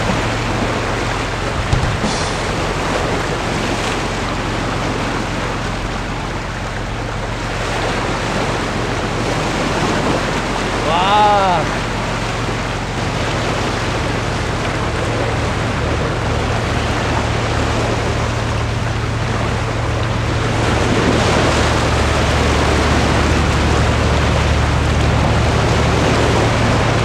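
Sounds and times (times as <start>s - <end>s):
wind buffeting microphone: 0.0s - 10.8s
steady low hum: 0.0s - 27.0s
waves washing against rocks: 0.0s - 27.0s.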